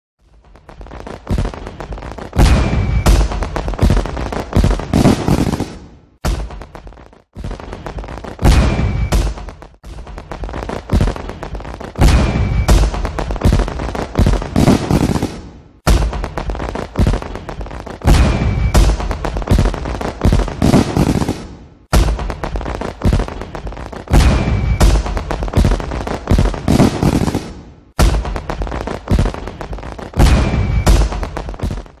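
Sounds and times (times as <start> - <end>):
fireworks bangs and crackling: 0.2 - 32.0
firework whistle: 2.4 - 3.6, 8.5 - 9.4, 12.0 - 13.2, 18.0 - 19.2, 24.2 - 25.2, 30.2 - 31.3.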